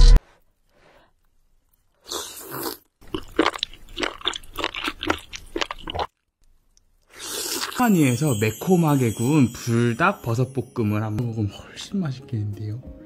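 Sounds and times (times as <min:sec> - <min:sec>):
wet chewing with mouth clicks: 0:01.7 - 0:07.8
slurp: 0:02.0 - 0:02.9, 0:07.1 - 0:07.8.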